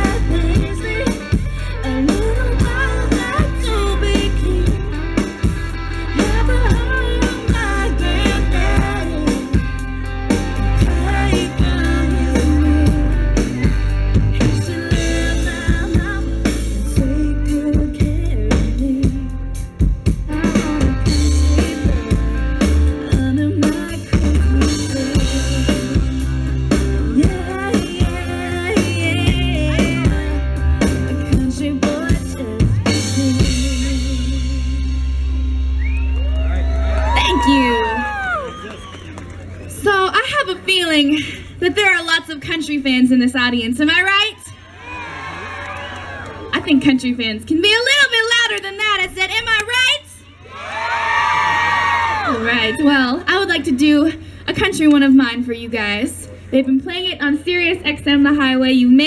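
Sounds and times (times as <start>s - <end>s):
woman singing: 0.0s - 5.2s, 6.1s - 9.8s, 10.6s - 13.6s, 14.3s - 19.6s, 20.2s - 26.2s, 27.0s - 35.1s
live band playing: 0.0s - 44.6s.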